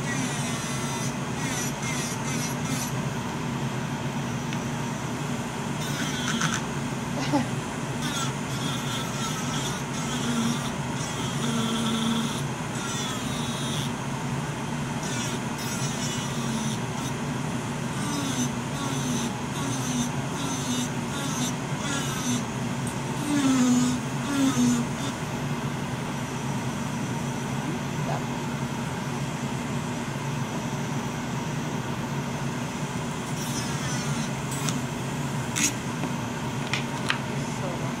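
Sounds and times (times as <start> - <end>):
electric nail drill whine: 0.0 - 3.0, 5.5 - 6.8, 7.8 - 14.1, 14.8 - 25.4, 33.1 - 35.9
dust collector fan humming: 0.0 - 38.0
scratchy filing noise: 0.1 - 2.9, 33.3 - 34.8.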